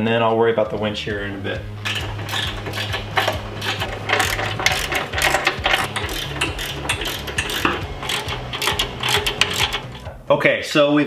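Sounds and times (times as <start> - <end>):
tools and bolts clattering: 1.8 - 10.2.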